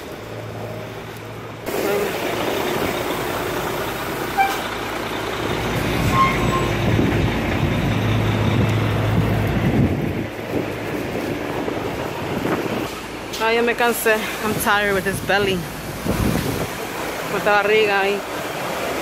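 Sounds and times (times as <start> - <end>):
bus engine running: 0.0 - 19.0
street traffic: 0.0 - 19.0
short squeaks: 4.3 - 4.8, 6.0 - 6.9.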